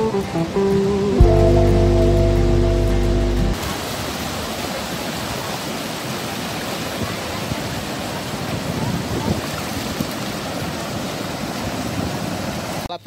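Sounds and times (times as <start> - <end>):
ocean surf rushing: 0.0 - 12.9
water washing and splashing: 3.6 - 12.9.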